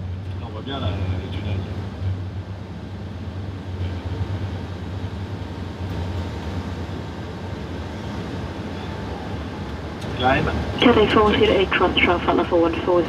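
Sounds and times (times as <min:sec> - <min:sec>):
roar of airflow and jet engines: 0:00.0 - 0:13.0.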